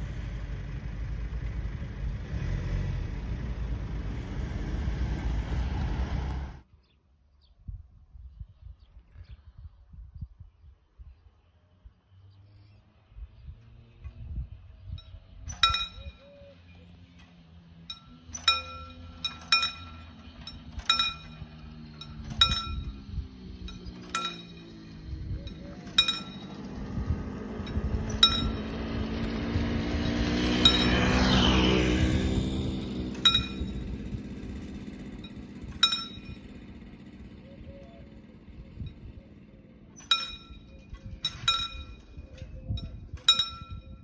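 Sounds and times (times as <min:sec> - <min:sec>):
moped engine passing: 0:00.0 - 0:07.0, 0:11.2 - 0:44.0
level crossing warning bell: 0:15.0 - 0:16.7, 0:17.4 - 0:29.0, 0:30.5 - 0:31.2, 0:33.1 - 0:36.9, 0:40.0 - 0:42.2, 0:42.8 - 0:44.0.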